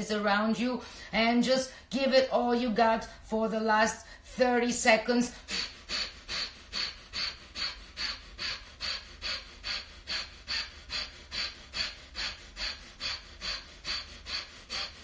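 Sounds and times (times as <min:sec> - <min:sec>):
woman exhaling forcefully: 0:05.3 - 0:15.0.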